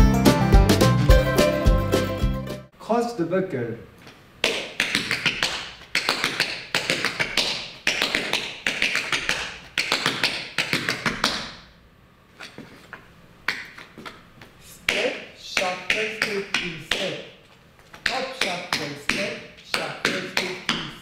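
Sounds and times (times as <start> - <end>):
tap shoes on hard floor: 17.8 - 21.0.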